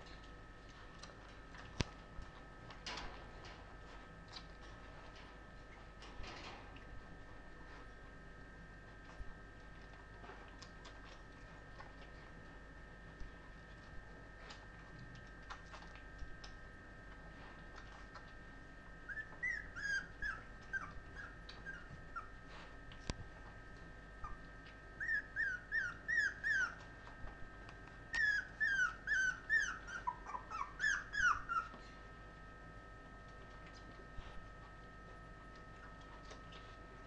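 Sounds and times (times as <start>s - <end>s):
puppies whimpering: 19.1s - 22.4s, 25.0s - 26.9s, 28.1s - 31.8s.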